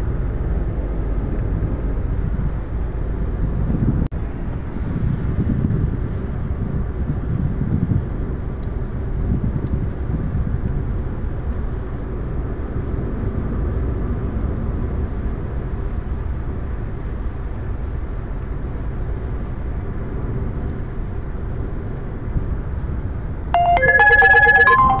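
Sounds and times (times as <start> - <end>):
electronic tune of stepping notes: 23.6 - 25.0.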